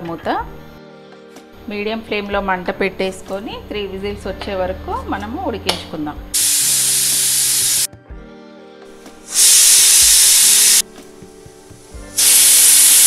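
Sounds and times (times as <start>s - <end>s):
pressure cooker whistling steam: 6.4s - 7.9s, 9.3s - 10.9s, 11.8s - 13.0s.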